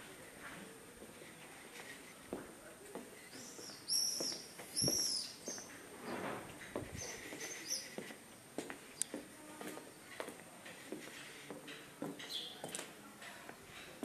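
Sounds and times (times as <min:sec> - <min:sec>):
footsteps on stone paving: 0:00.4 - 0:05.7, 0:06.6 - 0:13.6
small bird chirping: 0:03.2 - 0:05.8, 0:07.0 - 0:08.1.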